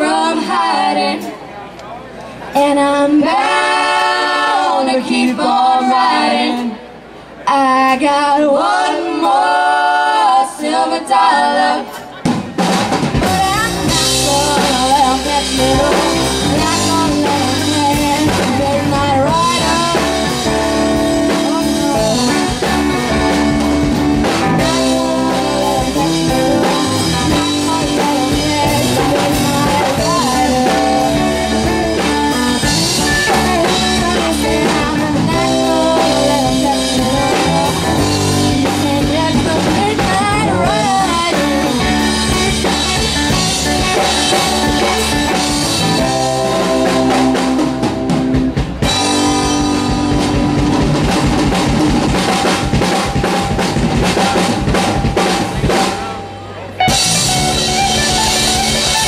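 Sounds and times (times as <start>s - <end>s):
keyboard: 8.4s - 59.0s
drum kit: 11.9s - 59.0s
electric guitar: 12.6s - 59.0s
person singing: 13.2s - 48.1s.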